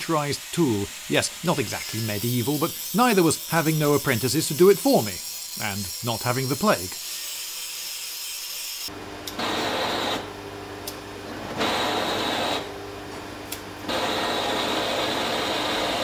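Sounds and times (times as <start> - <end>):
gas blowtorch hissing: 0.0 - 5.1, 9.3 - 10.3, 11.3 - 12.7, 13.9 - 16.0.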